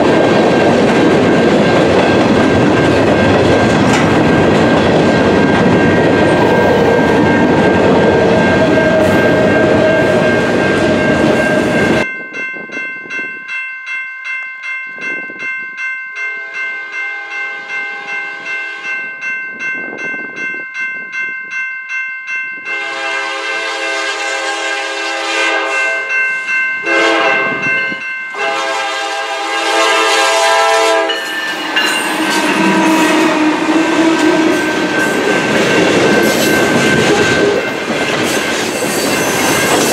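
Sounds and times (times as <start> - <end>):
freight cars clattering: 0.0 - 6.2
locomotive engines under load: 0.0 - 12.1, 30.9 - 39.9
crossing bell dinging: 0.0 - 24.0, 25.1 - 39.9
locomotive horn: 16.3 - 19.0, 22.7 - 26.2, 26.8 - 27.7, 28.3 - 35.3.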